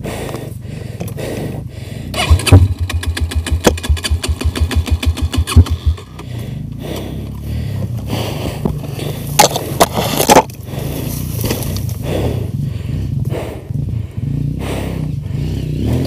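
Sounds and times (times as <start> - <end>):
dirt bike engine running: 2.0 - 16.0
branches crackling and scraping: 8.7 - 12.0.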